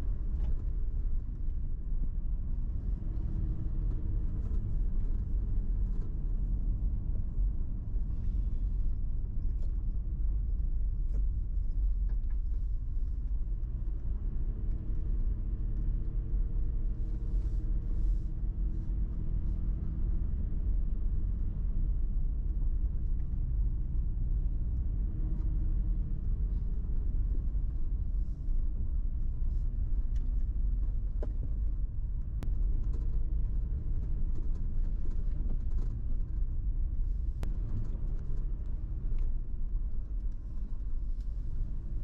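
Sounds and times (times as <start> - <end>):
road and engine rumble: 0.0 - 42.0.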